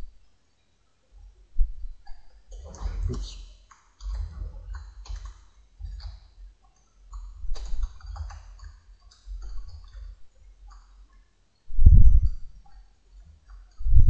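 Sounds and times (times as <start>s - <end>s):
typing on a keyboard: 3.7s - 11.3s.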